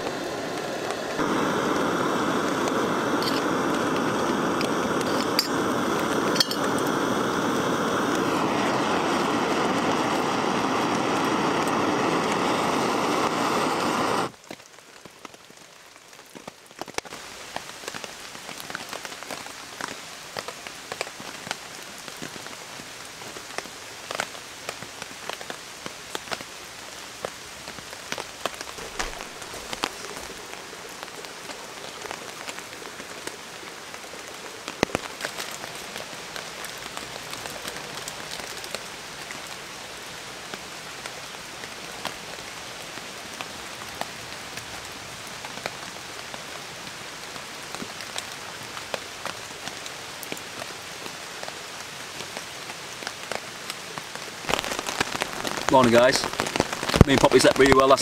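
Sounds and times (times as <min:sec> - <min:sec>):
camping stove burner hissing: 0:00.0 - 0:14.7, 0:27.9 - 0:40.6, 0:54.4 - 0:58.0
rain pattering: 0:00.0 - 0:58.0
metal pot clinks: 0:06.4 - 0:06.7.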